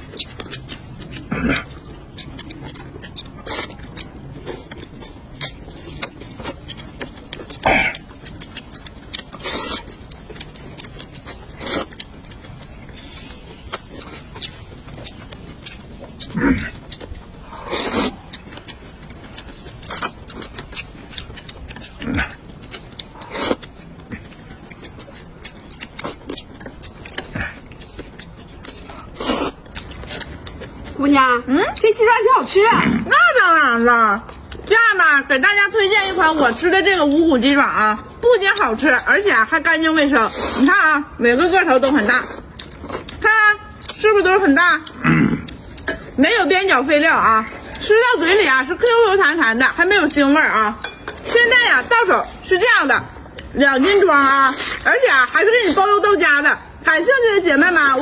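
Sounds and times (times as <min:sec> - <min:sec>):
food chewing: 0:00.0 - 0:58.0
noodles being slurped: 0:17.3 - 0:18.4, 0:27.1 - 0:30.4.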